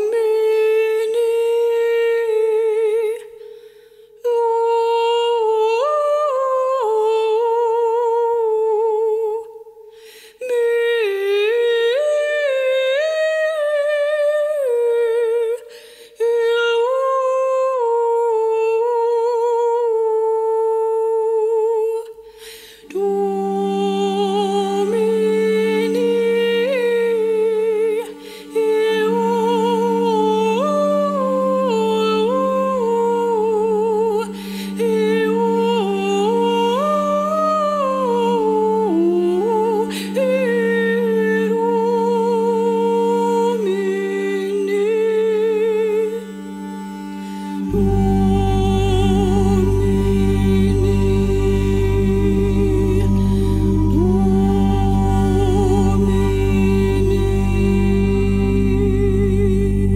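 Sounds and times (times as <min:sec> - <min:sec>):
woman singing: 0:00.0 - 0:46.7, 0:47.5 - 0:59.9
low steady drone: 0:47.6 - 0:59.9.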